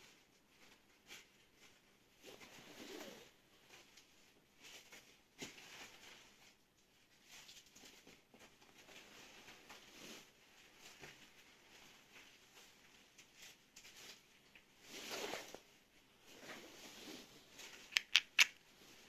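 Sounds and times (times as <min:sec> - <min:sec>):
fingers handling coin cell: 0:17.9 - 0:18.6.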